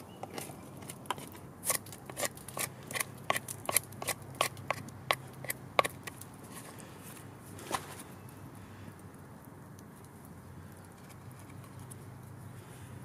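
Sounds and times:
knife shaving wood: 0.0 - 8.0.

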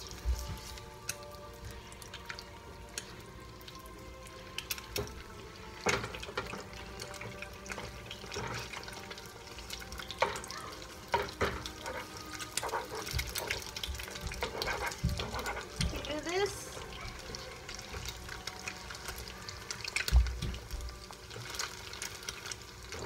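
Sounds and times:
eggs sizzling in a frying pan: 0.0 - 23.0
spatula scraping a pan: 7.8 - 8.9, 11.1 - 16.5.

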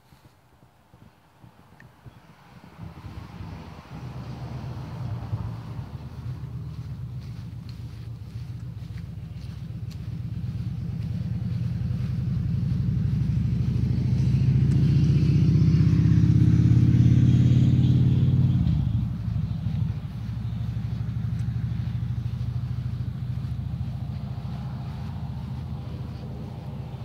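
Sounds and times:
vehicle engine passing by: 2.2 - 27.0.

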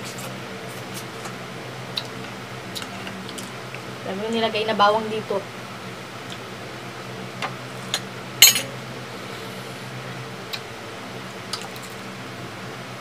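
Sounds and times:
dishes clinking on glass table: 8.4 - 8.7.

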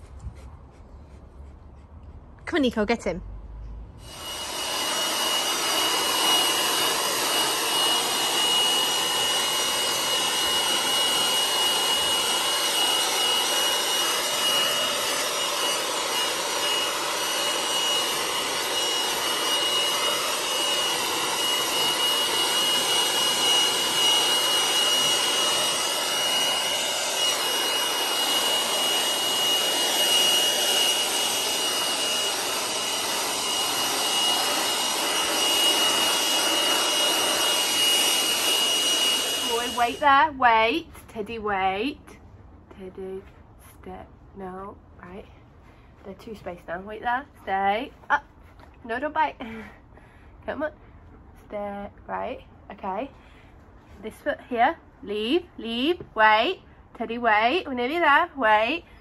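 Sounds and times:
handheld blower whining: 4.0 - 40.6.

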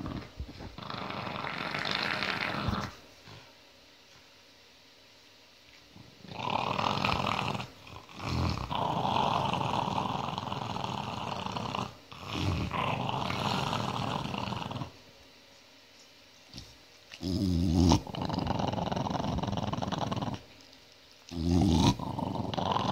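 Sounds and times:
dog growling: 0.0 - 3.5, 6.0 - 15.0, 16.5 - 20.6, 21.3 - 22.9.

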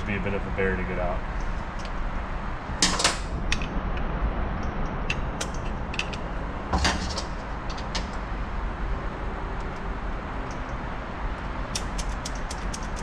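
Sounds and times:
metal tools clicking and scraping: 11.4 - 13.0.

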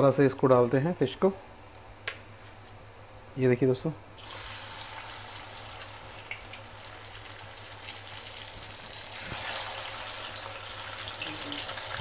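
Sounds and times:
fish sizzling in hot oil: 4.2 - 12.0.

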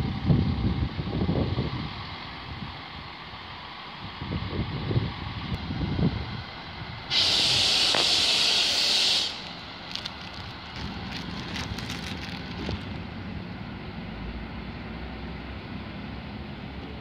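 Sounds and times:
diesel railcar running: 0.0 - 17.0
compressed air hissing: 7.1 - 13.0.

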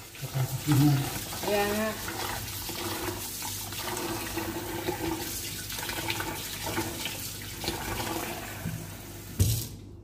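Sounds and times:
tap running into a sink: 6.0 - 9.8.

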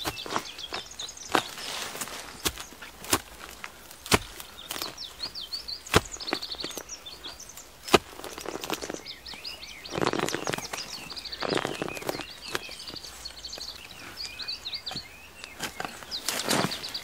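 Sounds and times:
hoe striking earth: 0.0 - 13.1
small birds chirping: 0.0 - 17.0
soil scraping: 0.0 - 17.0.

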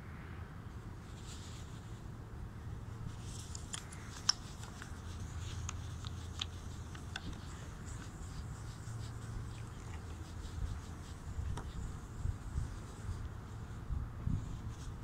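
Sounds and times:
low background hum: 0.0 - 15.0
paper towel rubbing on plastic: 3.1 - 15.0.

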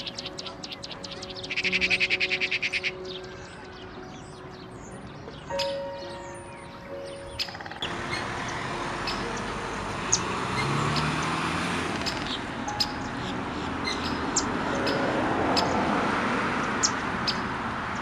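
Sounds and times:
distant road traffic: 0.0 - 18.0
small birds chirping: 0.0 - 18.0.

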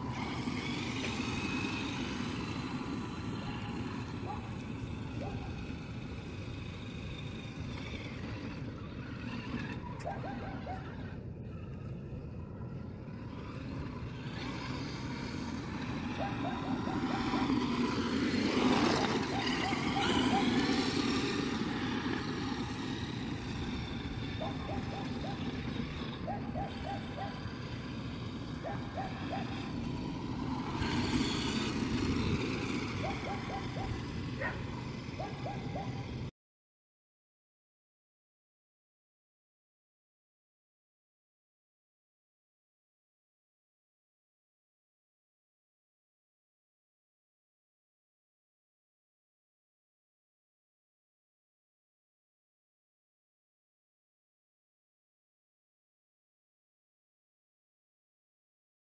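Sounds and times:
rc truck driving over dirt: 0.0 - 36.3.

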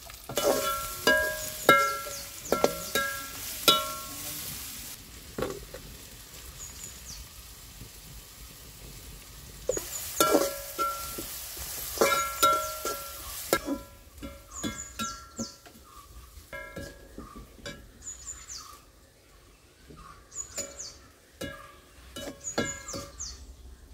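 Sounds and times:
food sizzling: 0.0 - 23.9
ladle knocking and scraping pan: 0.2 - 4.2, 9.7 - 18.0, 20.5 - 23.3.

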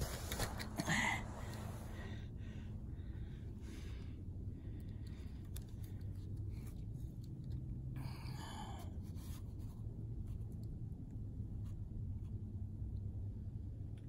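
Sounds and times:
clothing and gear rustling: 0.0 - 2.0
steady low rumble: 0.0 - 14.0.

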